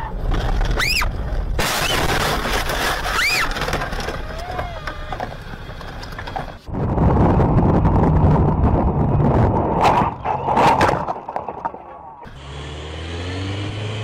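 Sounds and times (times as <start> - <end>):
car crash: 1.5 - 4.2.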